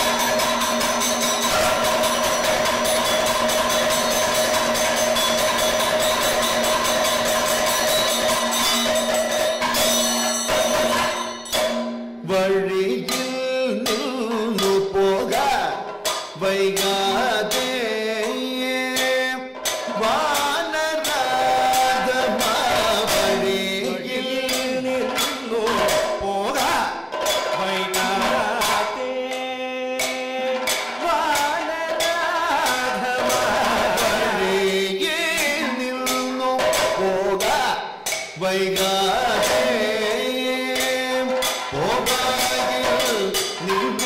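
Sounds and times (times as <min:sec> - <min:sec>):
drum beaten with sticks: 0:00.0 - 0:44.0
hand-held percussion: 0:00.0 - 0:44.0
man singing ornamented melody: 0:12.2 - 0:44.0.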